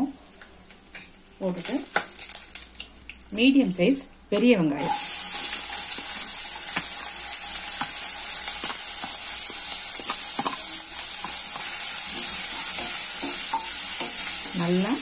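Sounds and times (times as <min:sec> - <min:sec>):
onions sizzling in hot oil: 0:00.0 - 0:15.0
wooden spatula stirring: 0:10.0 - 0:15.0.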